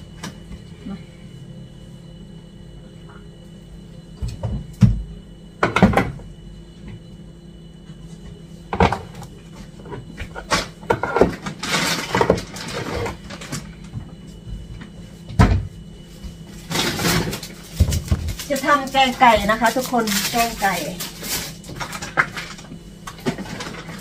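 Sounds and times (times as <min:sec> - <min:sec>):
cupboard knocks and clatters: 0:15.3 - 0:15.7.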